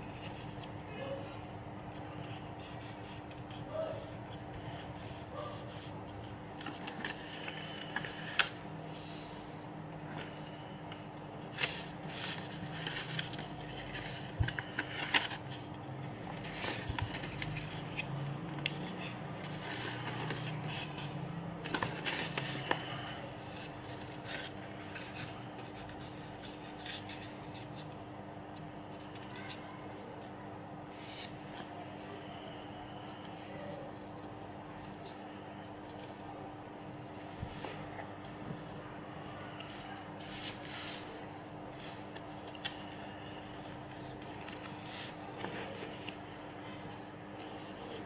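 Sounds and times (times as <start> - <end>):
faint steady hum: 0.0 - 48.0
fingers scraping along paper folds: 1.9 - 9.4, 11.5 - 27.8, 39.5 - 46.4
paper rustling and crackling: 2.0 - 9.4, 11.5 - 27.8, 37.2 - 48.0.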